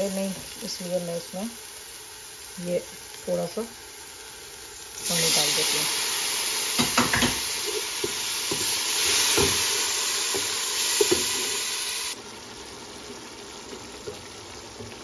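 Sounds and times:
water sizzling in hot oil: 0.0 - 15.0
wooden spoon knocking against pot: 6.8 - 7.4.

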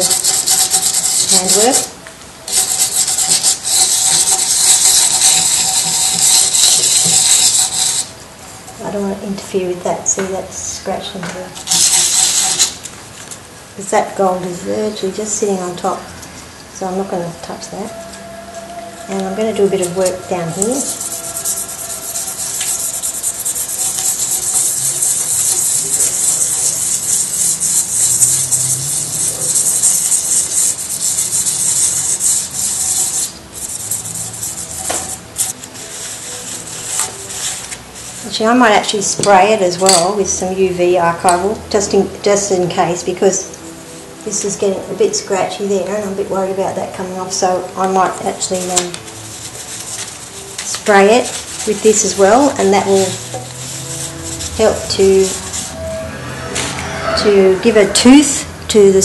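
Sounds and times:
sandpaper rasping on resin: 0.0 - 8.2, 11.7 - 12.8, 17.0 - 40.4, 48.1 - 56.2.

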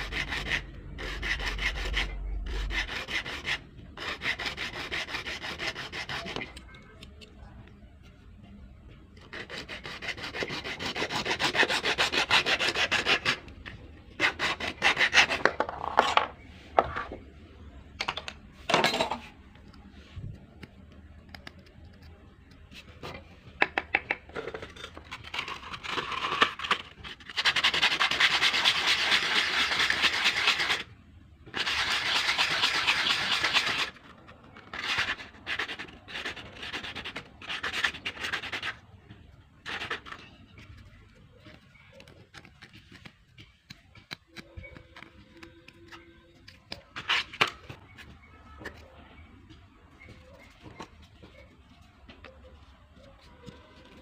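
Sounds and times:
sanding on sandpaper: 0.0 - 6.5, 9.3 - 13.4, 14.2 - 15.5, 25.3 - 30.9, 31.6 - 34.0, 34.7 - 38.8.

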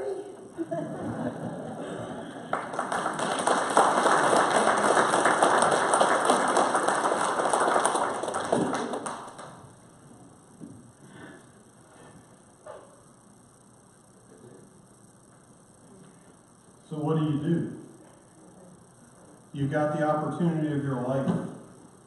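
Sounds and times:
crowd applauding: 1.4 - 9.7.

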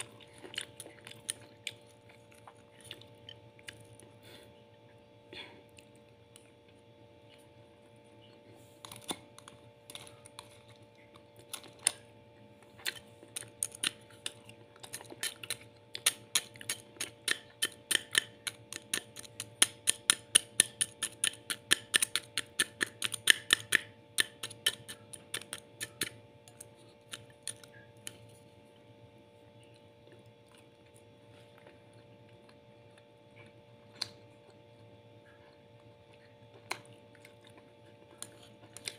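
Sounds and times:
faint steady hum: 0.0 - 38.9.

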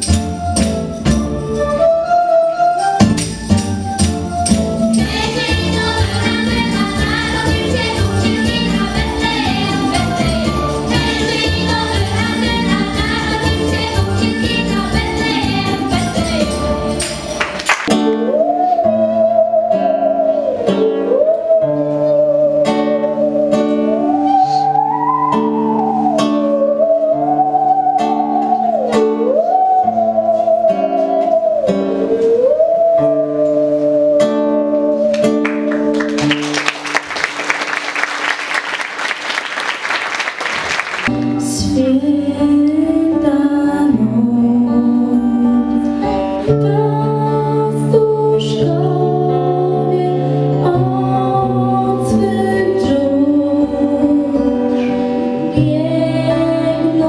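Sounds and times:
acoustic guitar: 0.0 - 39.2, 40.2 - 57.0
applause: 17.4 - 17.9, 35.4 - 41.2
girl singing a carol: 41.4 - 54.6, 55.5 - 57.0.

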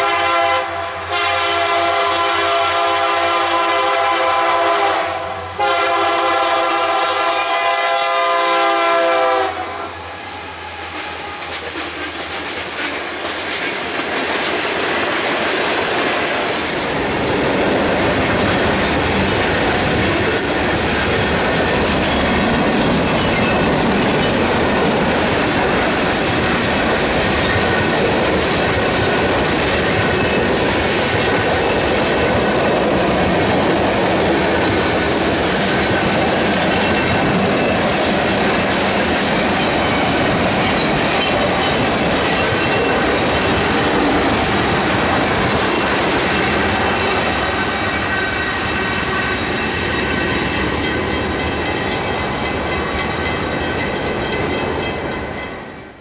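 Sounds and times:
train air horn blast: 0.0 - 11.4
train cars clattering past: 1.1 - 56.0.

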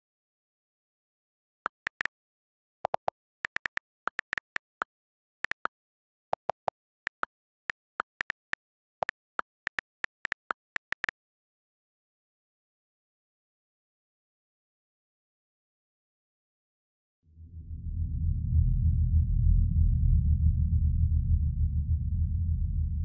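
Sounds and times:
on-screen keyboard clicks: 1.7 - 2.1, 2.9 - 5.7, 6.4 - 7.3, 8.0 - 11.1.

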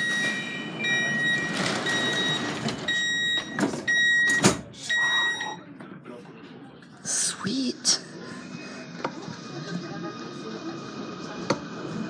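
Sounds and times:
train door warning beeps: 0.0 - 5.6.

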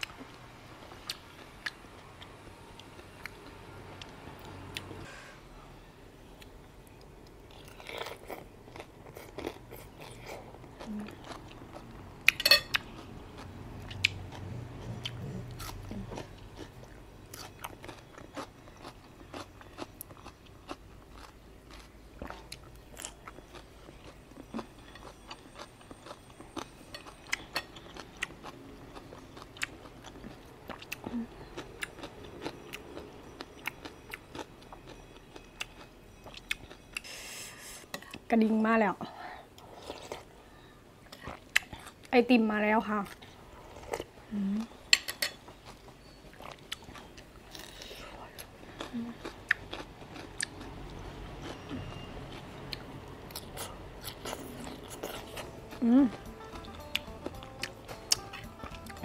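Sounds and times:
person chewing and biting: 7.5 - 37.1, 45.6 - 59.0.

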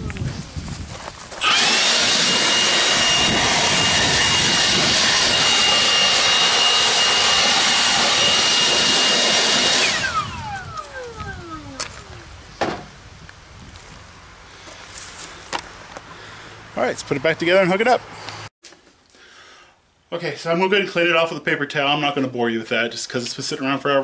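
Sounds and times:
leaf blower running: 1.4 - 12.3.

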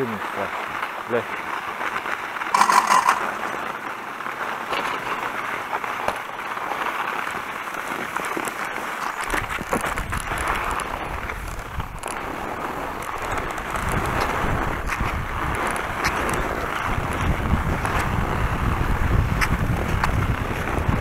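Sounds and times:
skis sliding over wet snow: 0.0 - 21.0
wind rumble on microphone: 9.0 - 21.0.

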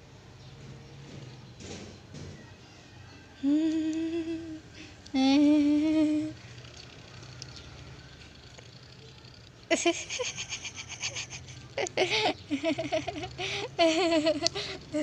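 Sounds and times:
person laughing: 9.7 - 15.0.

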